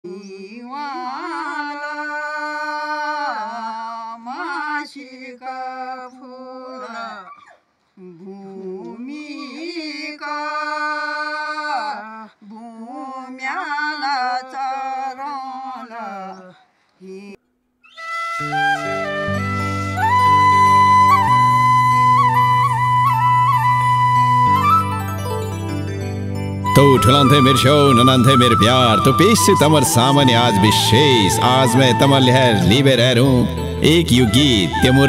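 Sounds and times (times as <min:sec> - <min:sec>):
person singing long notes: 0:26.7 - 0:35.0.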